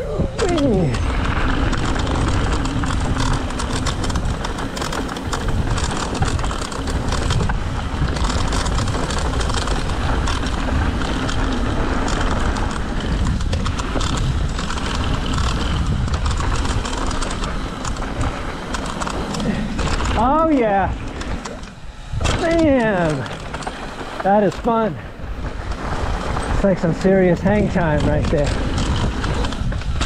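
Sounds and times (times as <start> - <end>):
bike clicking and rattling: 0.0 - 30.0
tyres rolling over gravel: 0.0 - 30.0
wind buffeting microphone: 0.0 - 30.0.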